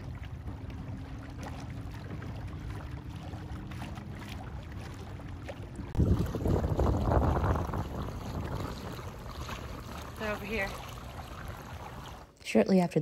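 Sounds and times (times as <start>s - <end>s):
small waves lapping at kayak: 0.0s - 12.4s
wind on microphone: 5.8s - 12.2s.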